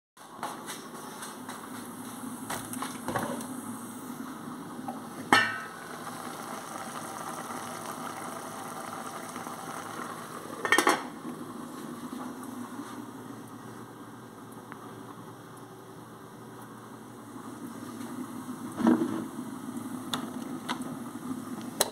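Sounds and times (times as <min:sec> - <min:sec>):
food simmering hiss: 0:02.0 - 0:13.9, 0:16.6 - 0:21.9
metal pan lid clanking: 0:05.3 - 0:05.7.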